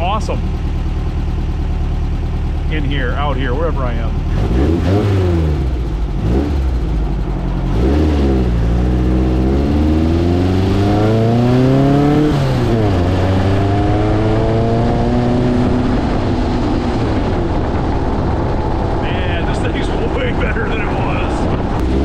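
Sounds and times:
engine revving through gears: 2.7 - 17.8, 21.4 - 22.0.

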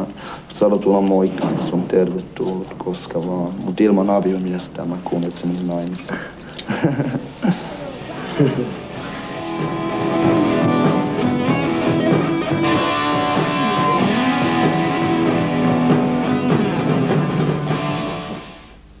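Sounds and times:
rock music with electric guitar: 7.7 - 18.7.

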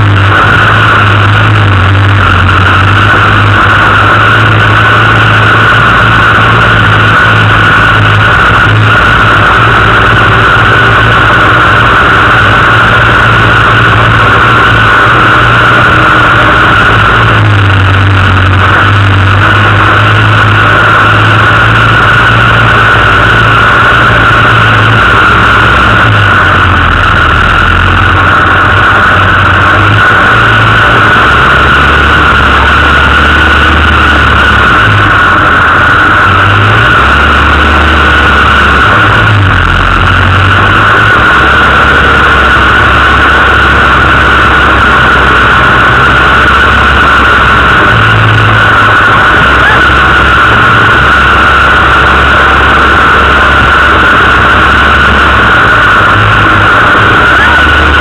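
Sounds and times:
off-road vehicle engine revving: 0.0 - 58.0.

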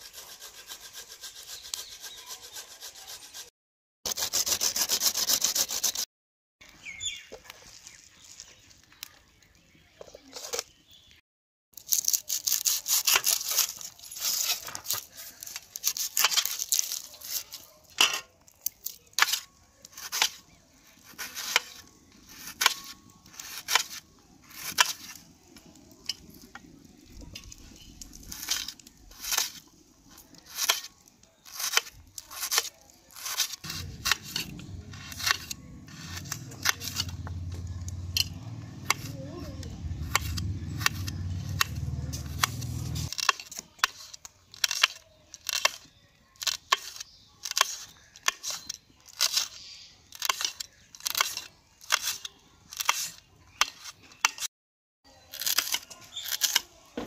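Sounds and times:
grating on metal grater: 0.0 - 3.5, 31.5 - 37.4, 38.2 - 39.1
knife chopping on metal plate: 31.5 - 39.1, 40.0 - 44.0.

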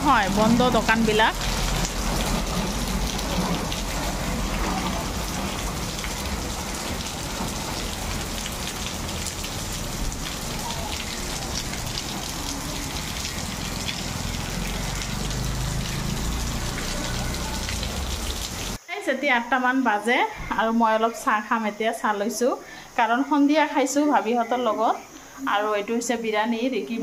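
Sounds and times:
heavy rain falling: 0.0 - 18.8.

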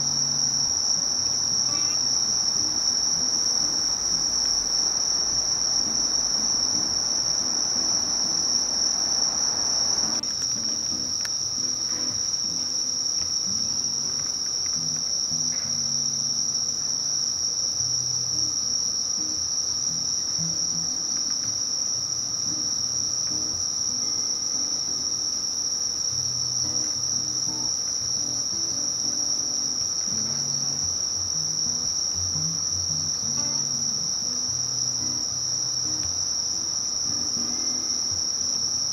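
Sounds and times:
faint rushing hiss: 0.0 - 38.7
insect trilling: 0.0 - 38.9.

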